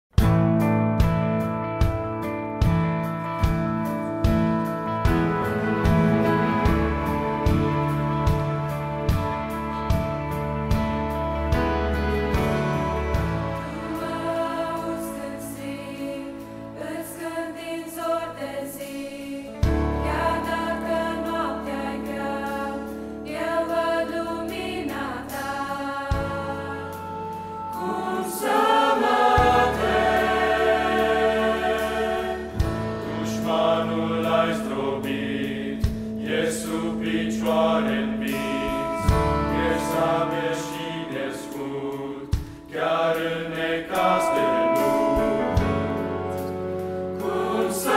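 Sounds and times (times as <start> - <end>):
instrumental accompaniment: 0.2 - 18.1, 19.5 - 47.9
choir singing a hymn: 4.3 - 47.9
deep bass note: 38.2 - 40.0.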